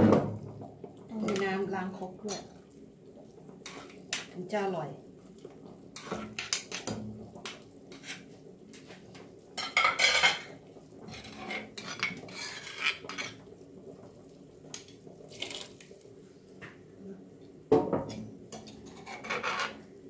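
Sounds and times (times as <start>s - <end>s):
metal spoon scraping stone mortar: 11.2s - 13.1s, 18.8s - 19.8s.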